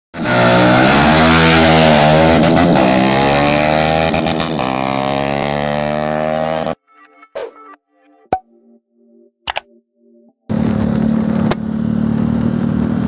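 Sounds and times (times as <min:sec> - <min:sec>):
motorcycle engine at high revs: 0:00.2 - 0:06.8, 0:10.5 - 0:13.0.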